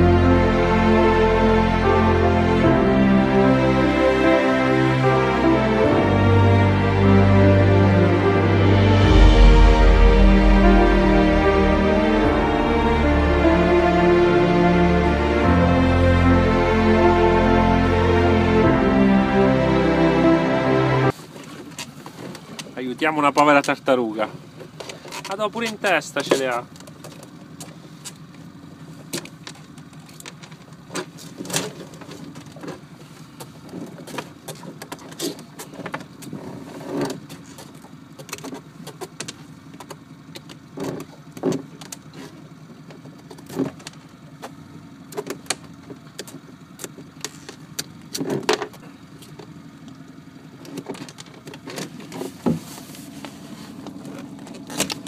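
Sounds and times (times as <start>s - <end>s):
low hum: 0.0s - 21.1s.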